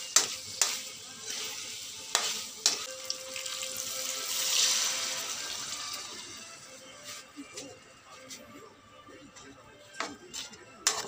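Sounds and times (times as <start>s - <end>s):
food sizzling in a wok: 0.0s - 7.3s
water poured into hot wok: 2.9s - 6.6s.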